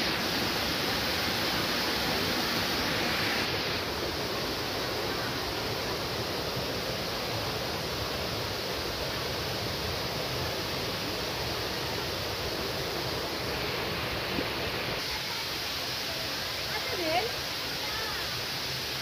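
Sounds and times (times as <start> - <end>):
waterfall and stream rushing: 0.0 - 19.0.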